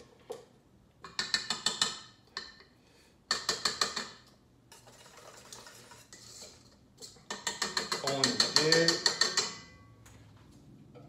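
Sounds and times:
metal clattering in mixer bowl: 0:03.4 - 0:09.8.

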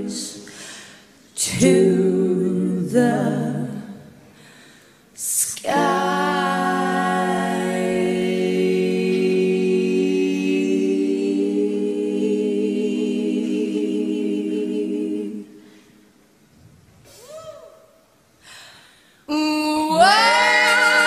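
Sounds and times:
women singing in harmony: 0:00.0 - 0:00.6, 0:01.3 - 0:04.2, 0:05.2 - 0:15.7, 0:19.3 - 0:21.0.

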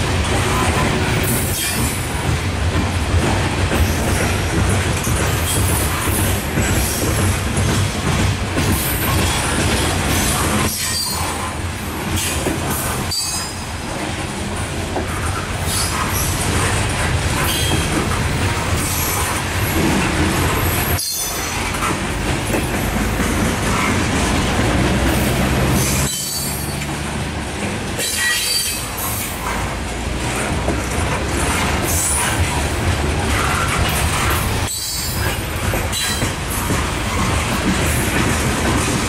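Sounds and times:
steel wheels rumbling on rail: 0:00.0 - 0:39.0
high-pitched wheel squeals: 0:25.8 - 0:26.9.

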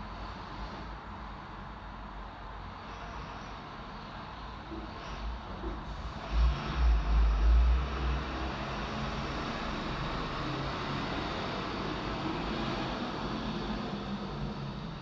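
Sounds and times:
distant road traffic hum: 0:00.0 - 0:15.0
loud low rumbles: 0:05.8 - 0:12.6.

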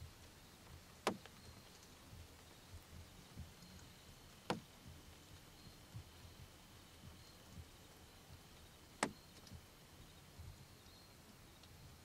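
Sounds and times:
soft low thumps: 0:02.1 - 0:03.8, 0:04.4 - 0:10.6.

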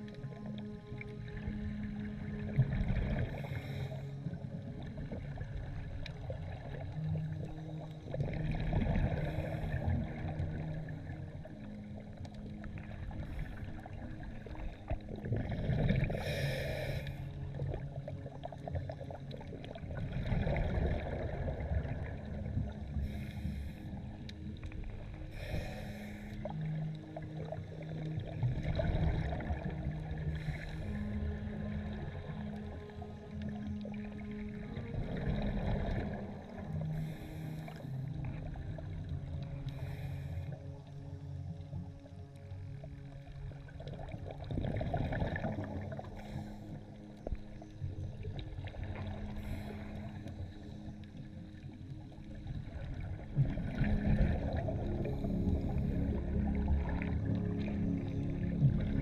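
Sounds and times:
exhaled bubbles rushing: 0:01.4 - 0:37.4, 0:43.6 - 0:46.6, 0:52.1 - 0:59.0
regulator inhale hiss: 0:03.4 - 0:04.1, 0:16.0 - 0:17.3, 0:23.0 - 0:24.0, 0:25.3 - 0:26.5.

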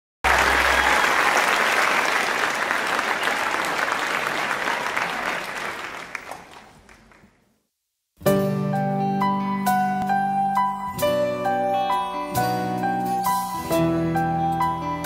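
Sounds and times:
audience applauding: 0:00.2 - 0:07.5.

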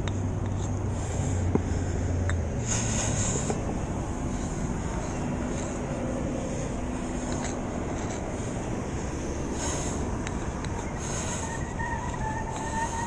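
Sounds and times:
low engine hum: 0:00.0 - 0:13.0
street traffic noise: 0:00.0 - 0:13.0.

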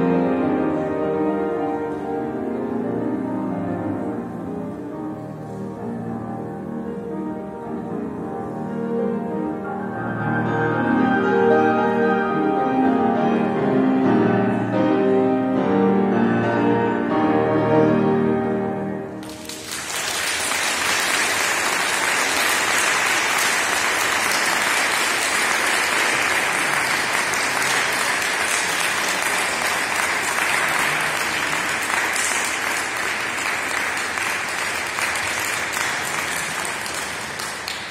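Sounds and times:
audience applauding: 0:19.2 - 0:37.9.

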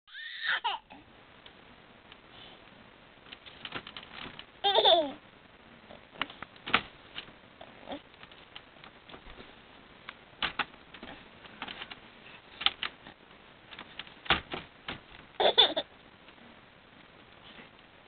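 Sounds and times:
baby squealing: 0:00.1 - 0:00.8.

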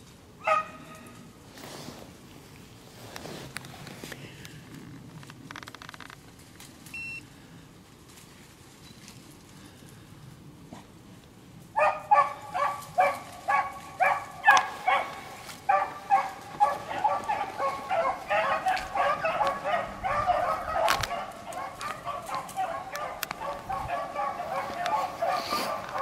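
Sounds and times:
hounds baying: 0:00.4 - 0:01.2, 0:11.7 - 0:26.0.

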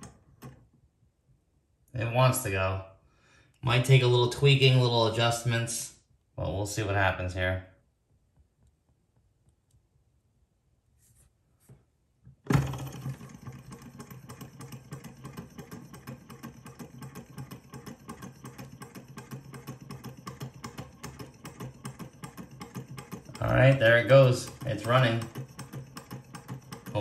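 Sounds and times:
stirling engine rapid clicking: 0:12.7 - 0:27.0.

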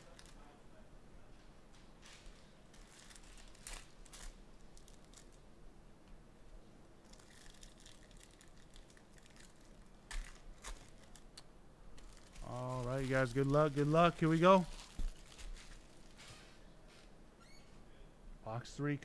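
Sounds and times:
foil wrapper crinkling: 0:00.0 - 0:00.5, 0:02.0 - 0:05.4, 0:07.0 - 0:11.4, 0:12.0 - 0:16.4
cards being handled: 0:12.0 - 0:17.1.

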